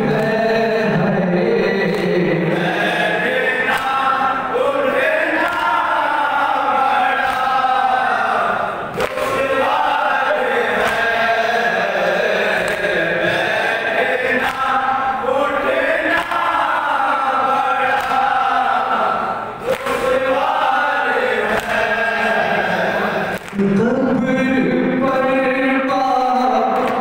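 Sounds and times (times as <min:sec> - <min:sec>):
men singing lament in unison: 0:00.0 - 0:27.0
chest slaps: 0:08.9 - 0:09.5, 0:19.6 - 0:20.2, 0:23.3 - 0:23.6.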